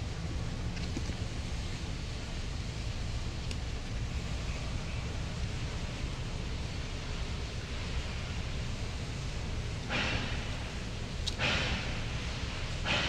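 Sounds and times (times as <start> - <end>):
steady low rumble: 0.0 - 13.0
short breathy hisses: 9.9 - 10.8.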